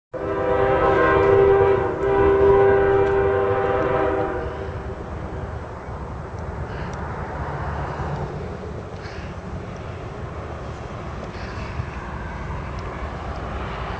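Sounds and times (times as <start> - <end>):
locomotive air horn blasts: 0.2 - 5.2
locomotive rumbling: 0.2 - 13.9.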